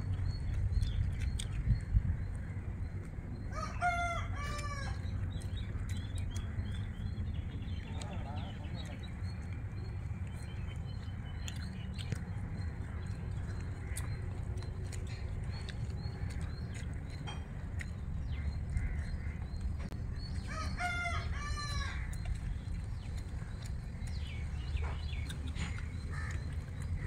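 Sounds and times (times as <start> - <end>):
steady low rumble: 0.0 - 27.0
rooster crowing: 3.5 - 5.0.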